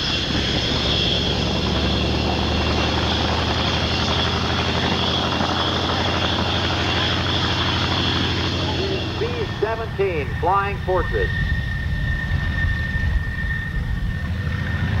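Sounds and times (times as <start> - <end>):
radial aircraft engine running: 0.0 - 15.0.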